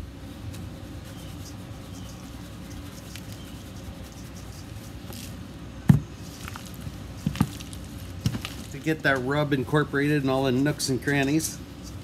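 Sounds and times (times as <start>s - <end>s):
steady low hum: 0.0s - 12.0s
faint scattered ticks: 0.5s - 5.4s.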